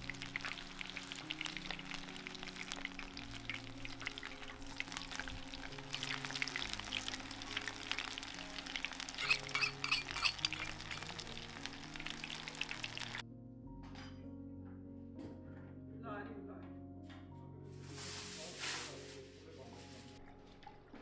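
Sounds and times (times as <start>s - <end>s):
batter frying in hot oil: 0.0s - 13.2s
soft background music: 0.0s - 21.0s.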